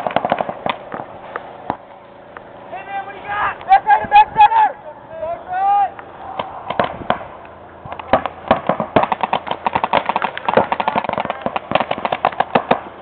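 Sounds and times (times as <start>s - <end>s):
paintball markers firing: 7.9s - 12.9s.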